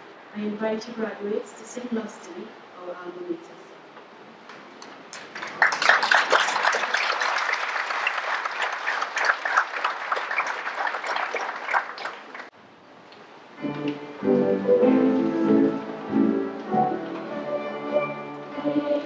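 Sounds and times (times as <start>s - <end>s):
audience applause: 5.1s - 12.5s.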